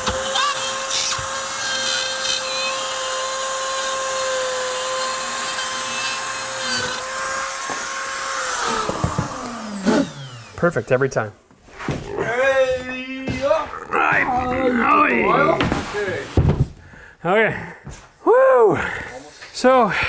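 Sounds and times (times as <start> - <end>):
rotary cutting tool whining: 0.0 - 11.1.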